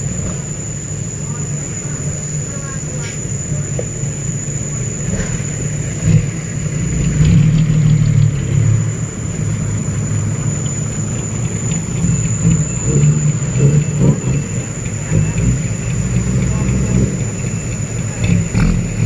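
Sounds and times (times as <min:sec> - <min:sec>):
dump truck engine driving: 0:00.0 - 0:19.0.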